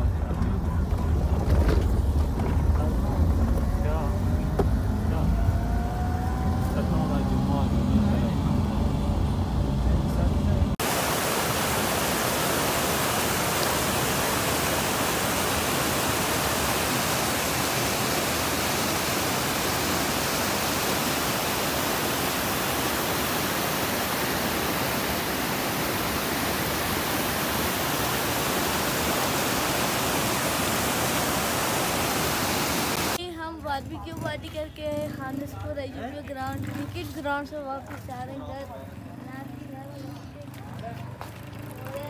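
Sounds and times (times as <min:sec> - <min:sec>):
stream rushing over rocks: 0:10.8 - 0:33.2.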